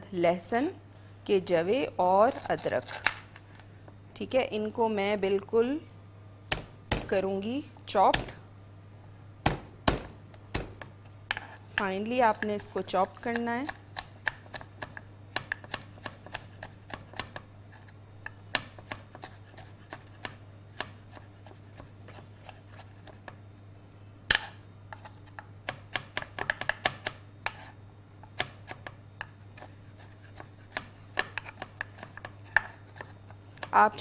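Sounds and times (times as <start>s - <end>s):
knife chopping on wooden board: 9.4s - 17.4s, 18.5s - 23.2s, 24.3s - 27.7s.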